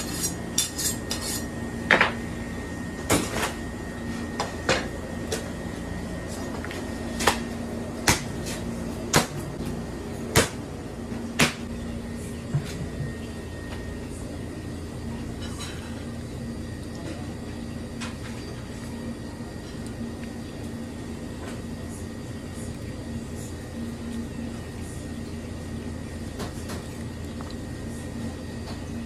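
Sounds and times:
steady background hum: 0:00.0 - 0:29.0.

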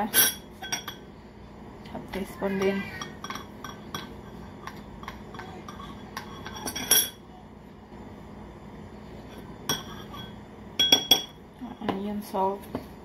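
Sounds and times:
teaspoon clinking against glass bowl: 0:02.6 - 0:07.2, 0:09.7 - 0:11.4.

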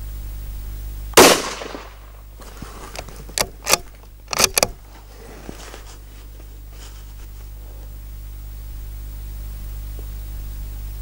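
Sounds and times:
rifle shot with echo: 0:01.2 - 0:02.3
rifle bolt metallic clacks: 0:02.9 - 0:04.8.

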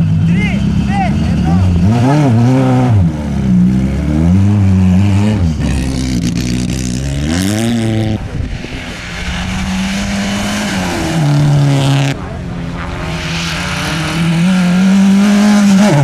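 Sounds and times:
rally car engines revving: 0:00.0 - 0:16.0.

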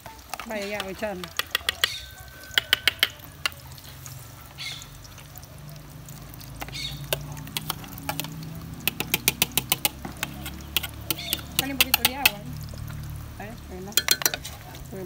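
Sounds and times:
metal spoon clicking on bowl and pot: 0:00.8 - 0:03.6, 0:07.1 - 0:12.4, 0:14.0 - 0:14.5
grated tomato poured and scraped: 0:08.9 - 0:12.2.

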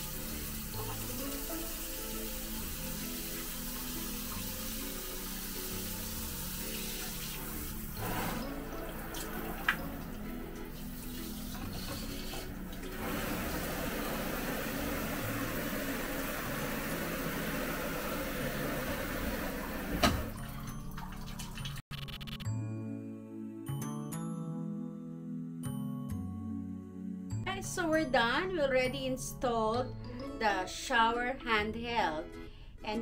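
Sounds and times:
shower head spraying water: 0:00.0 - 0:20.4
background music: 0:00.0 - 0:33.0.

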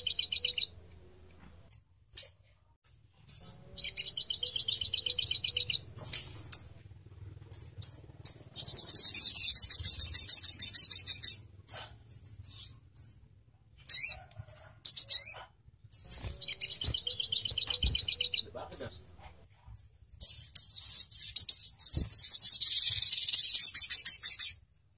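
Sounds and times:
bird singing high trills: 0:00.0 - 0:00.8, 0:03.3 - 0:06.7, 0:07.5 - 0:11.4, 0:14.9 - 0:18.6, 0:20.2 - 0:24.6
bird chirps: 0:00.0 - 0:00.9, 0:03.2 - 0:06.8, 0:07.4 - 0:19.1, 0:19.7 - 0:24.6.

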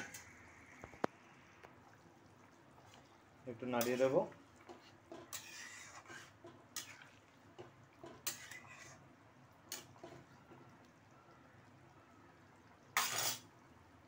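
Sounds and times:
metal spoon clinking and scraping pot: 0:03.6 - 0:09.0, 0:09.7 - 0:10.4, 0:12.9 - 0:13.5.

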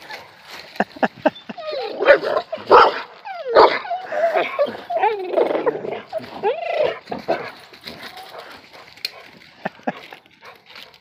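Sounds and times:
dogs whining and yelping: 0:01.2 - 0:08.7.

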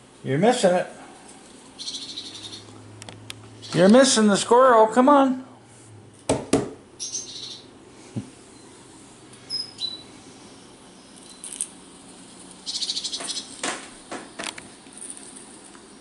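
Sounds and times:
small birds chirping: 0:01.7 - 0:02.8, 0:03.4 - 0:04.2, 0:07.0 - 0:07.8, 0:08.5 - 0:11.6, 0:12.5 - 0:13.6
sharp knocks: 0:06.3 - 0:06.8.

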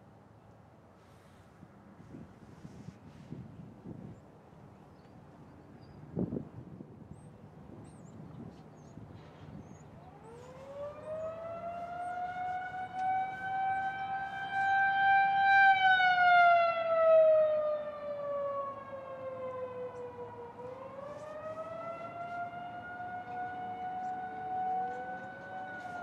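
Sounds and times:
wavering warning siren: 0:09.0 - 0:26.0.

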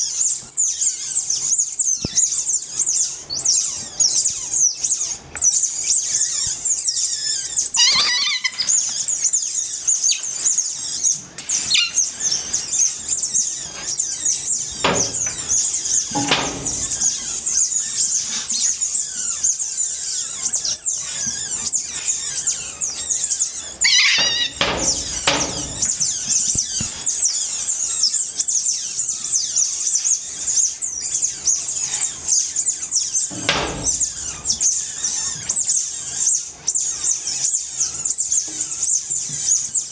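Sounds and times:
otters chirping and squealing: 0:00.1 - 0:39.9
dull knocks: 0:14.7 - 0:17.4, 0:23.9 - 0:26.9, 0:33.3 - 0:34.6.

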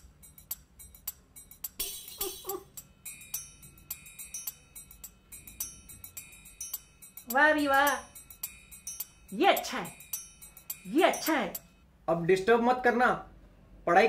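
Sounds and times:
tinkling mallet percussion music: 0:00.0 - 0:11.8
vocal murmur: 0:02.2 - 0:02.7.

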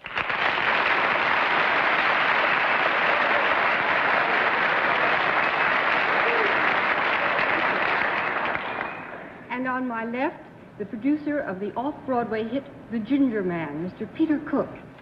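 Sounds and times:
audience applauding: 0:00.0 - 0:09.5.

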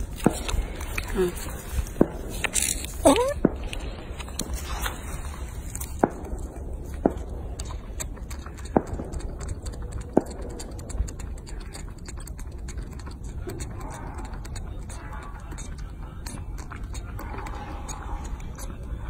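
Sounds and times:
monkey sucking at plastic bottle: 0:00.0 - 0:19.0
sharp mouth clicks: 0:00.0 - 0:19.0
steady low rumble: 0:00.0 - 0:19.0.

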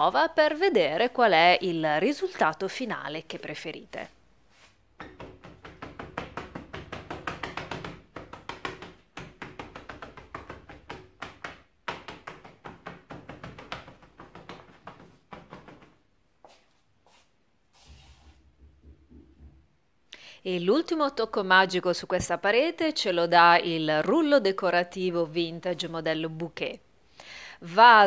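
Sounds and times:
rag dabbing on wall: 0:00.0 - 0:19.6.

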